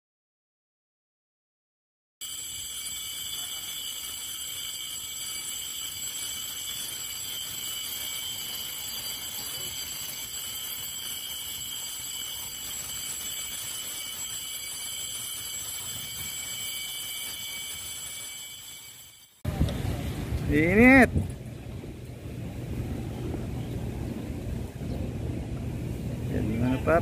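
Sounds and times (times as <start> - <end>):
fire alarm tone: 2.2 - 19.4.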